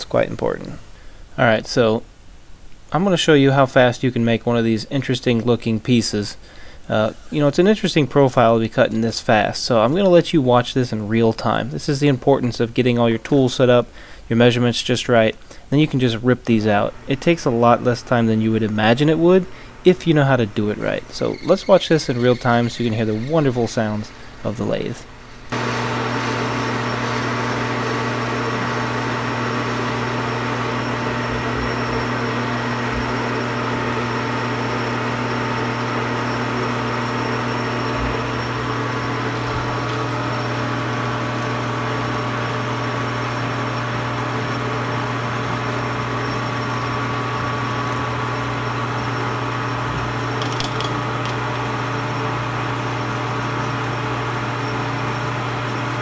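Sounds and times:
metal lathe humming: 16.8 - 24.4, 25.5 - 56.0.

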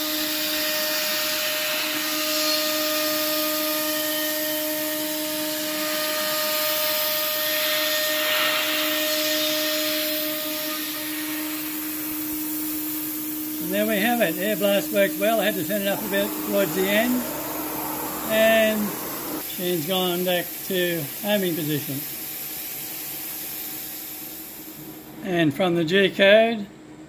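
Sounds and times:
router spindle whining: 0.0 - 19.5
compressed air hissing: 0.0 - 25.2.

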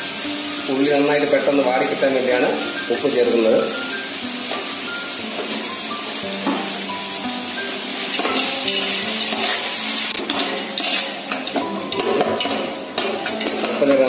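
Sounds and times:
onions sizzling in hot oil: 0.0 - 14.0
spoon scraping a pot: 8.3 - 14.0.

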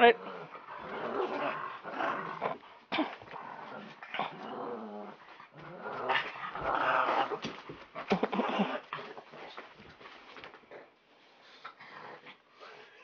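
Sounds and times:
dog growling in play: 0.0 - 9.5.

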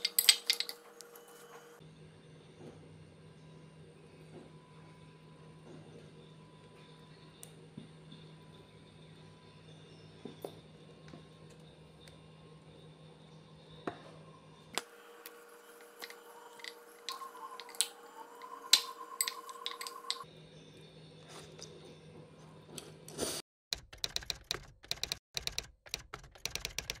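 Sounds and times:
utensil clinking ceramic bowl: 0.0 - 0.8, 15.8 - 20.2
rapid sharp clicks: 23.7 - 27.0.

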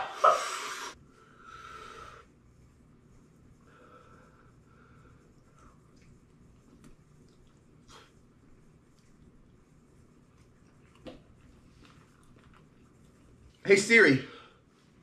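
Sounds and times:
man breathing: 0.3 - 2.3, 3.6 - 5.4.

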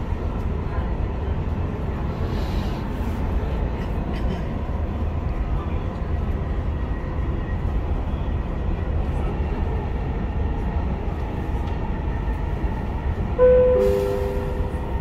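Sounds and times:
train rumbling: 0.0 - 15.0
two-note falling chime: 13.4 - 14.9.

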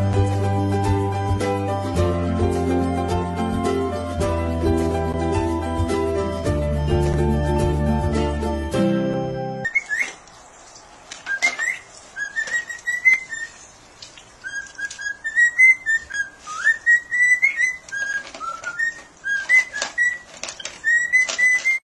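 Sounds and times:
cockatiel whistling: 9.6 - 10.2, 11.3 - 13.6, 14.4 - 21.8.

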